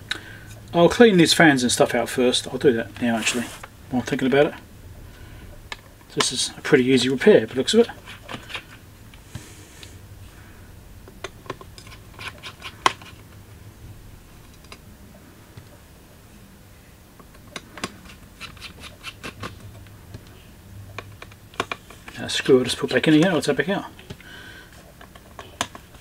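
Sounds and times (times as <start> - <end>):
faint low hum: 0.0 - 26.0.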